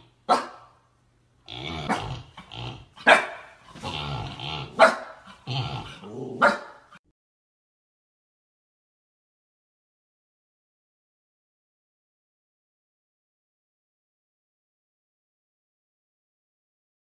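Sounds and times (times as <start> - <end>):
dog barking and vocalizing: 0.2 - 0.8, 1.7 - 3.9, 4.6 - 7.0.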